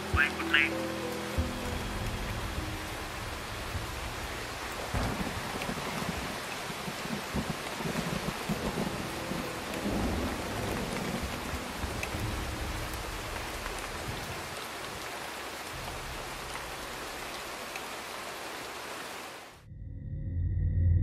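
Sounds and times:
steady rain falling: 0.0s - 19.6s
low rumbles of thunder: 2.0s - 14.7s.

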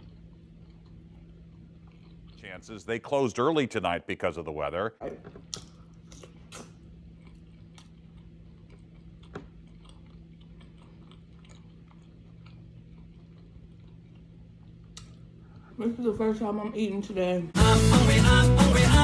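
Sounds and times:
soft mouth clicks and smacks: 0.0s - 2.5s, 5.4s - 15.7s
person chewing: 0.0s - 2.9s, 5.4s - 15.7s
steady low hum: 0.0s - 17.6s.

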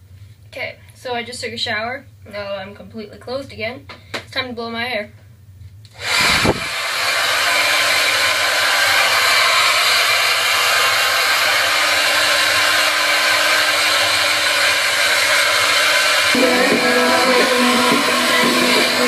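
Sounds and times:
hair dryer running: 5.9s - 19.0s.

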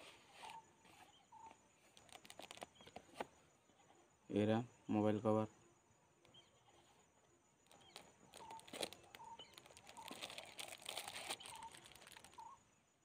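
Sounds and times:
faint bird chirps: 0.0s - 5.2s, 6.2s - 13.0s
plastic wrap crinkling: 2.0s - 2.7s, 7.7s - 12.4s.

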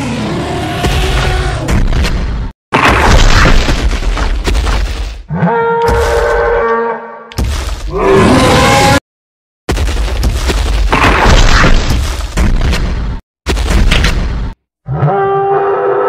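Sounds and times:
dinosaur roar: 0.0s - 1.7s.

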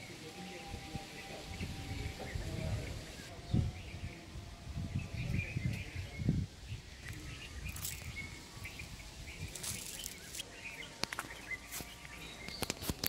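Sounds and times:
small birds chirping: 0.0s - 13.0s
wind buffeting microphone: 0.6s - 11.0s.

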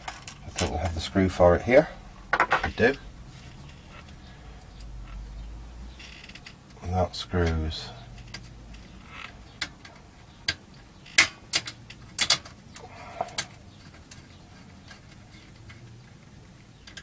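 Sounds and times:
metal clicks and knocks: 2.3s - 3.0s, 8.2s - 12.6s.

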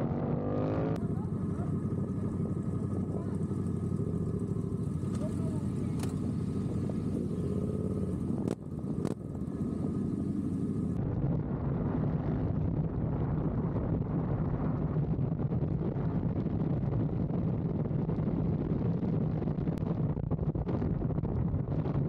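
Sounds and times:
motorcycle engines running: 0.0s - 22.0s
wind rushing over microphone: 0.0s - 22.0s
sharp clicks: 5.9s - 6.2s.

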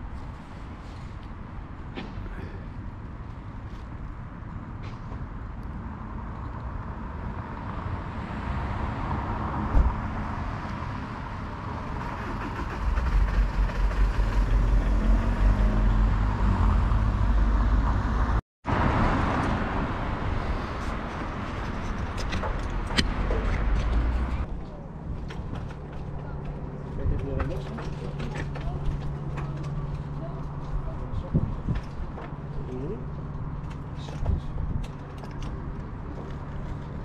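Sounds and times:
road traffic: 0.0s - 37.0s
wind buffeting microphone: 30.0s - 32.2s.

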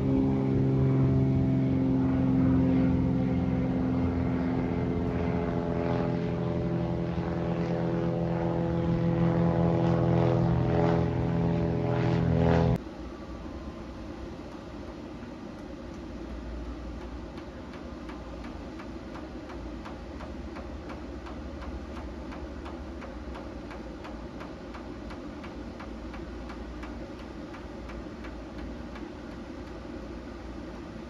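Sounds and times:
jet airliner rumble overhead: 0.0s - 31.0s
fast even ticking: 16.7s - 29.8s.

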